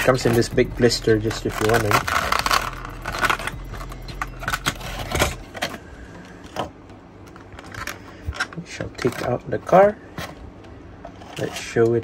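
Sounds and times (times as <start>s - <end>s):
plastic packaging crackling: 0.0s - 6.7s.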